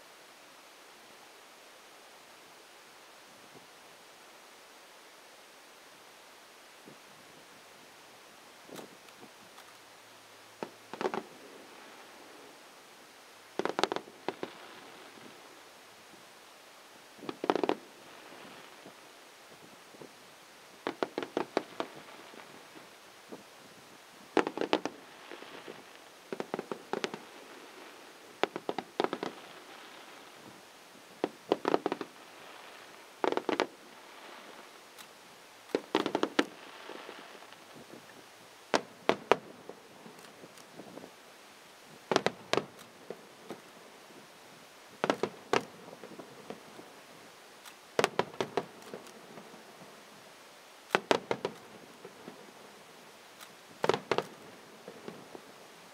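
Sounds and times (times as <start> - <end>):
fireworks bangs and crackles: 10.6 - 12.7, 13.5 - 16.3, 17.2 - 41.1, 41.9 - 44.3, 44.9 - 50.2, 50.8 - 55.8.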